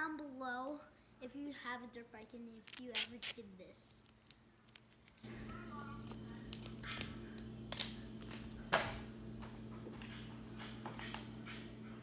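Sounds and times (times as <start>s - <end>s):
steady low hum: 4.0s - 12.0s.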